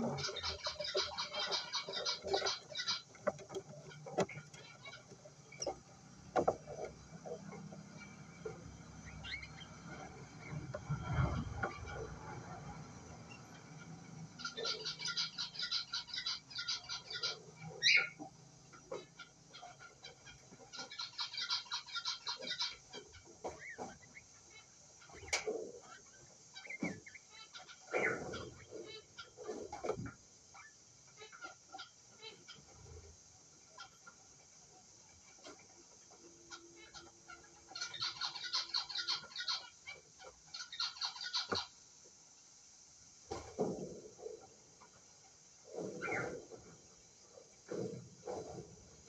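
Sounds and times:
chick squeaky chirps: 0.0 - 5.9, 13.3 - 18.3, 18.9 - 23.8, 36.5 - 41.8.

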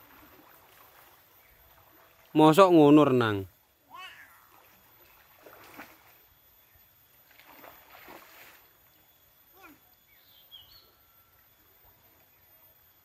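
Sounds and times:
soft water splashes: 0.0 - 3.1, 4.1 - 9.8
faint high call: 3.0 - 4.8, 9.4 - 12.6.

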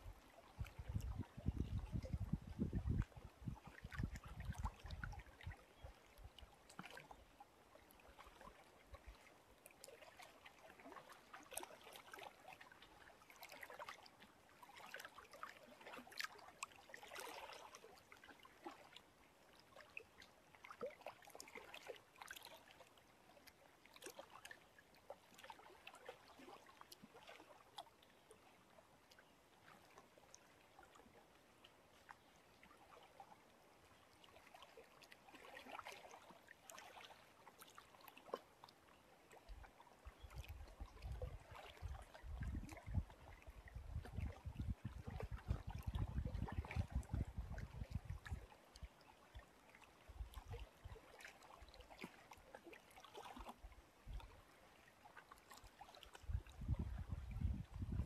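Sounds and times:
lake waves lapping: 0.2 - 57.4
wind rumble on microphone: 0.6 - 5.2, 40.5 - 48.4, 56.2 - 58.0.

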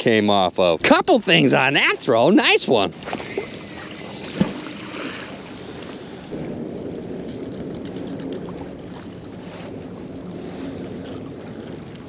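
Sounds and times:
river water lapping at shore: 0.0 - 12.0
wind buffeting microphone: 0.2 - 12.0.

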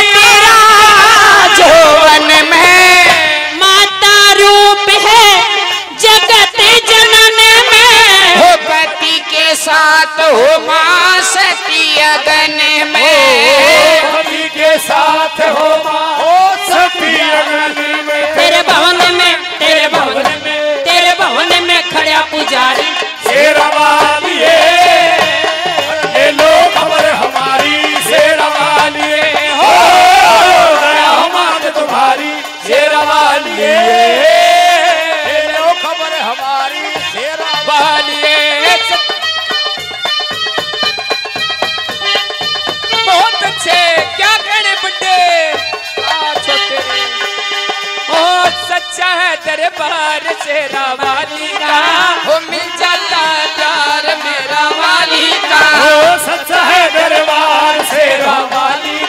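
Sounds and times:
woman singing into a microphone: 0.0 - 29.6, 43.0 - 47.3, 48.1 - 59.0
folk instrumental accompaniment: 0.0 - 59.0
drum beat: 11.3 - 59.0.

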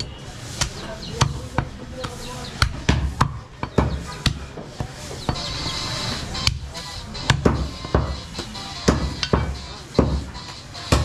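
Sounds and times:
cleaver chopping on wooden block: 8.9 - 10.2.

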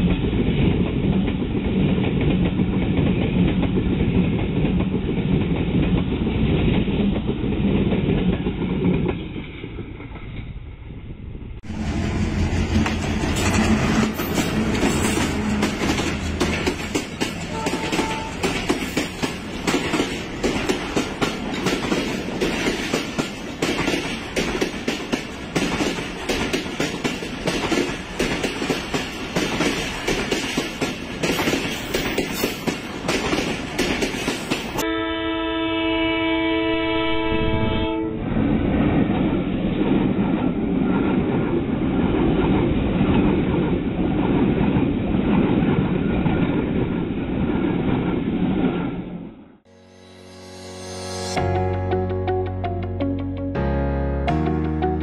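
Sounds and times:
passing train rumble: 0.0 - 55.0
train wheels clattering over rail joints: 11.8 - 34.8
locomotive horn: 17.4 - 18.7, 34.8 - 38.3.

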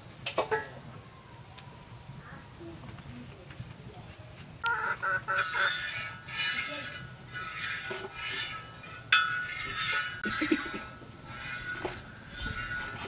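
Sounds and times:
metal utensil scraping a pan: 5.0 - 13.0.

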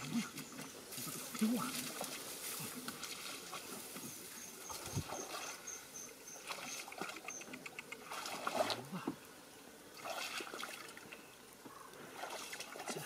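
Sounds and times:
footsteps splashing through water: 0.0 - 5.7, 6.4 - 7.3, 8.0 - 8.8, 10.0 - 11.0.

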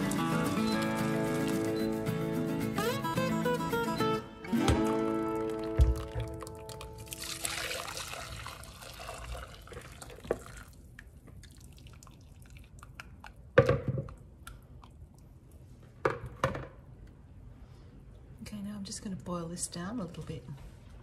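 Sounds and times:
water poured through a sieve: 0.0 - 1.9, 5.3 - 12.7
water dripping from sieve: 5.4 - 13.3.

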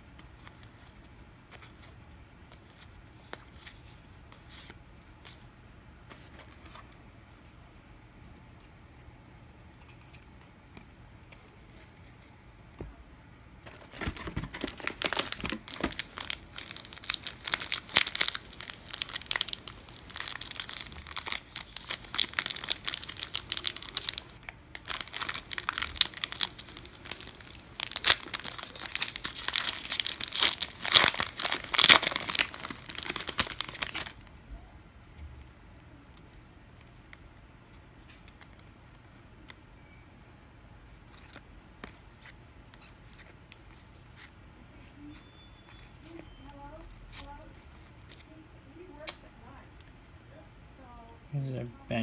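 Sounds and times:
wrappers tearing and crinkling: 13.7 - 34.2.

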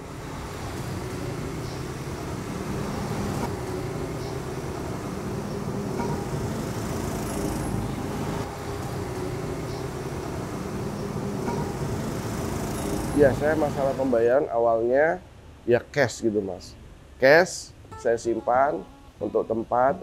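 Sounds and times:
road traffic engine hum: 0.0 - 14.3.

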